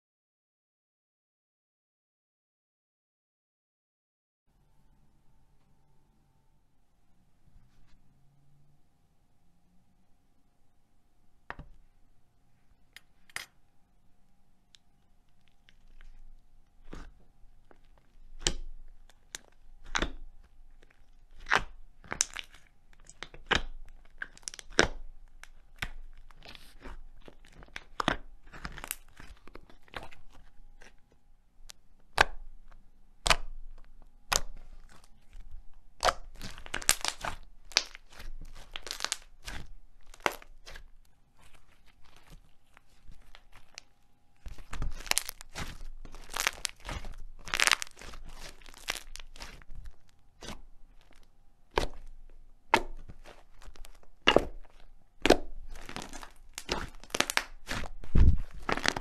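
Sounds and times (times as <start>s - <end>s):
slime popping and clicking: 31.7s - 35.1s, 36.0s - 40.8s, 44.5s - 52.1s, 52.7s - 59.0s.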